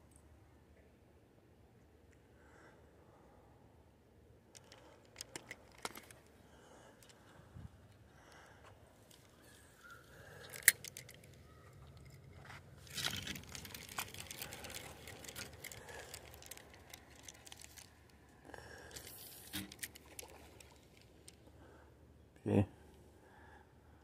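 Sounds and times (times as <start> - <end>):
rustling and crunching: 9.0 - 21.4.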